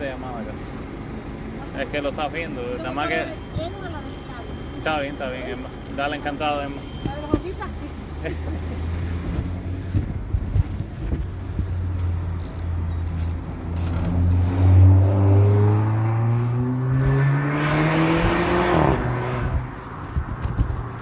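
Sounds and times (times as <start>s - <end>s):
car engine revving: 11.8s - 20.1s.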